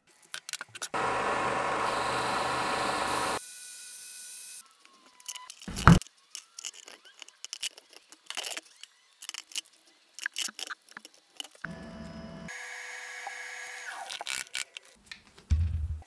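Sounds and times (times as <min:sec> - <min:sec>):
small tools handled on bench: 0:05.7 - 0:06.0.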